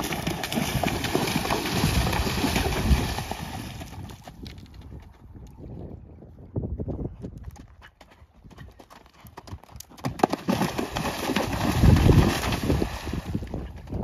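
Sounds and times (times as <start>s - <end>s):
hooves splashing through water: 0.0s - 4.5s, 10.1s - 14.0s
horse hoofbeats: 0.0s - 5.3s, 7.0s - 14.0s.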